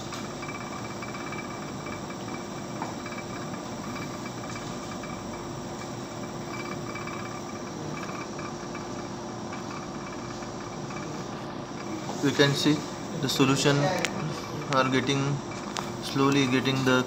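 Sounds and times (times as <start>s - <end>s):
stirrer motor humming: 0.0s - 17.0s.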